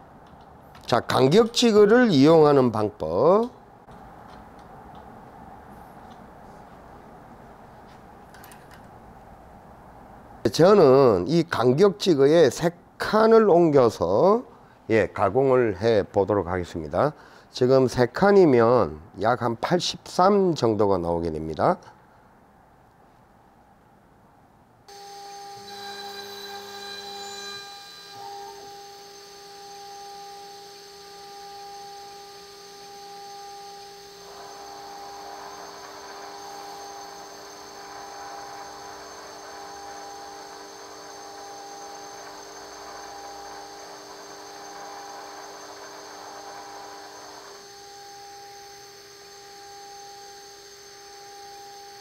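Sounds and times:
rough boring noise: 24.9s - 52.0s
spindle motor whining: 24.9s - 52.0s.

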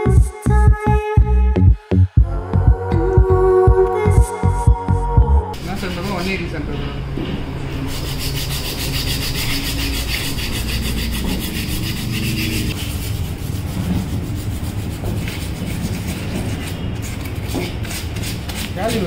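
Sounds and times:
steady low hum: 0.0s - 18.7s
hand sanding metal: 7.9s - 19.0s.

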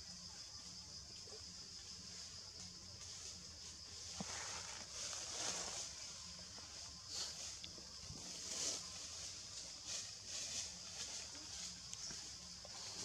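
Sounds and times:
high-pitched insect chorus: 0.0s - 13.0s
faint rustles: 1.8s - 13.0s.

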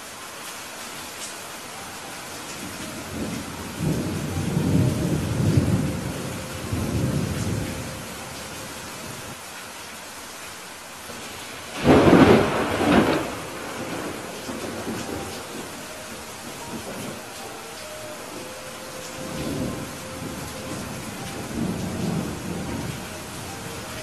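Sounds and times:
steady rain: 0.0s - 24.0s
thunder rumbling: 2.6s - 9.4s, 11.1s - 24.0s
sharp thunderclap: 11.8s - 15.6s.

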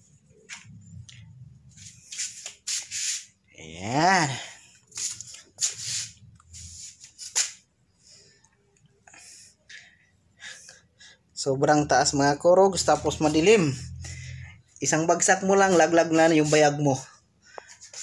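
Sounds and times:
person breathing puffs: 13.8s - 14.7s, 17.3s - 18.0s.

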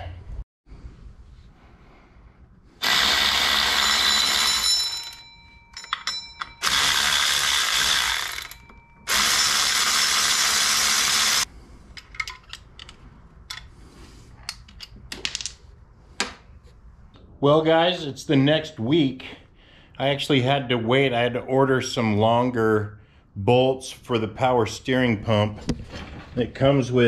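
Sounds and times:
handheld power tool running: 2.8s - 5.2s, 6.5s - 11.5s.

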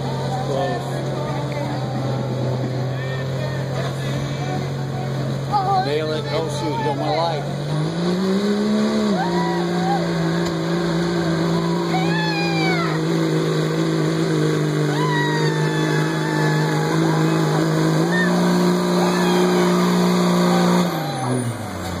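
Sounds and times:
diesel truck engine revving: 0.0s - 22.0s.

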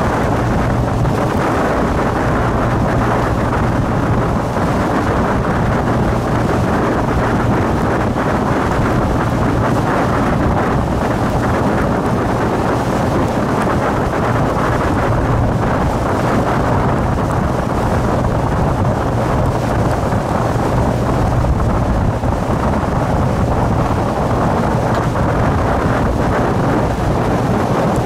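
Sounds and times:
boat engine humming: 0.0s - 28.0s
water rushing past hull: 0.0s - 28.0s
wind buffeting microphone: 0.0s - 28.0s.

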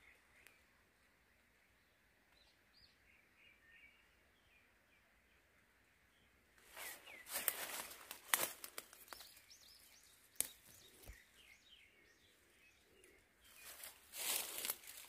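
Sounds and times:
leaves and twigs rustling: 6.6s - 11.4s, 12.9s - 15.0s
small bird chirping: 6.7s - 15.0s
twigs clicking and snapping: 7.3s - 9.6s, 10.2s - 11.2s, 13.0s - 15.0s.

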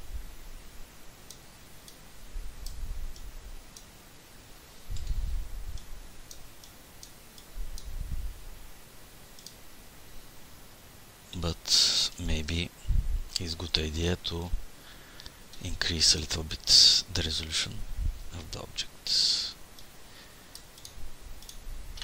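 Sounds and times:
computer mouse clicking: 9.4s - 9.6s, 20.5s - 21.6s.

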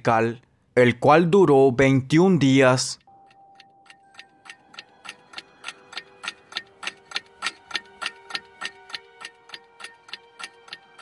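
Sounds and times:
clock ticking: 2.4s - 11.0s
faint held tone: 3.1s - 4.3s.

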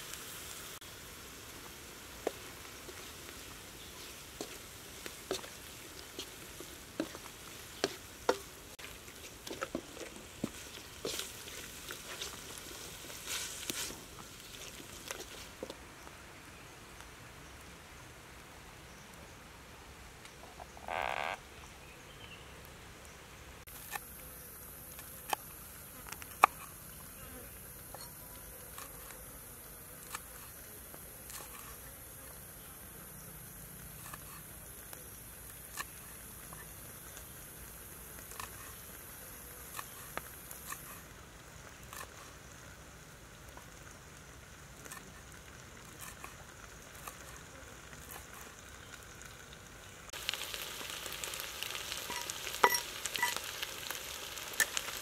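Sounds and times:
high insect drone: 20.6s - 21.4s.

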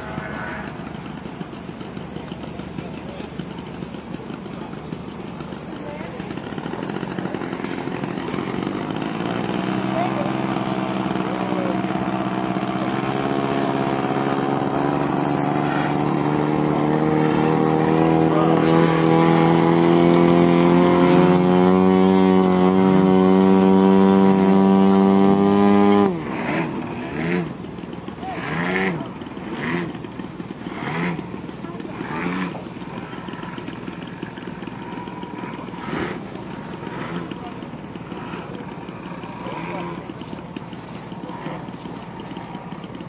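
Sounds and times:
faint passing engine: 0.0s - 43.0s
model aircraft engine running: 0.0s - 43.0s.

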